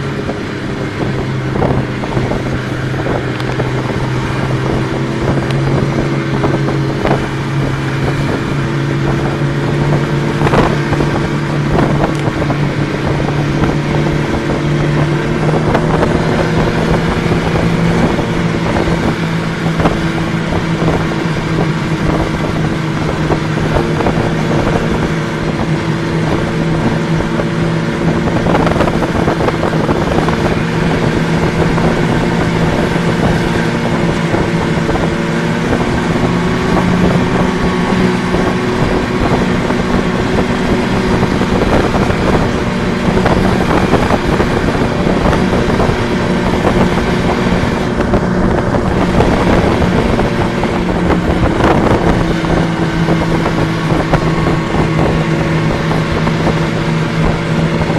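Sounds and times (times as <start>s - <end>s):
snowmobile engine running: 0.0s - 57.9s.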